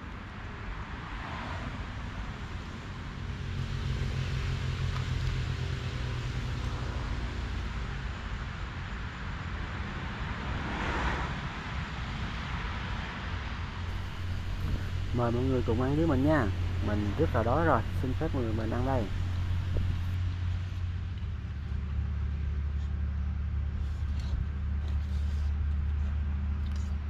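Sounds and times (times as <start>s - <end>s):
vehicles rushing past: 13.9s - 20.3s
low engine drone: 13.9s - 21.3s.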